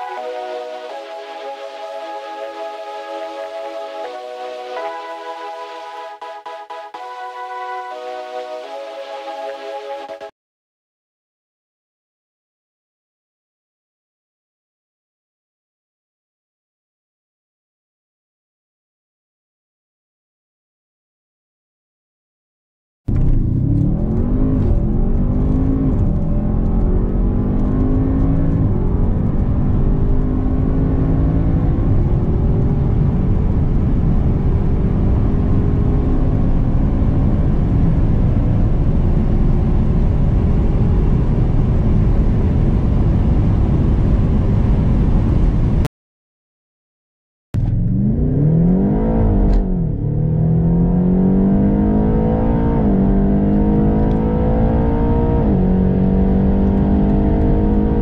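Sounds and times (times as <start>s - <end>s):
car engine accelerating hard: 23.1s - 45.4s, 47.6s - 58.0s
car engine at full throttle: 23.1s - 45.8s, 47.6s - 58.0s.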